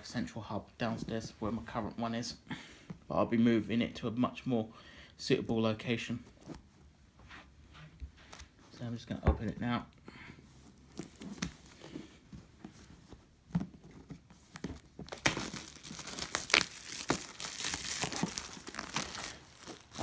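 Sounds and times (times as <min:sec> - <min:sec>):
plastic wrap crinkling and tearing: 0:14.8 - 0:20.0.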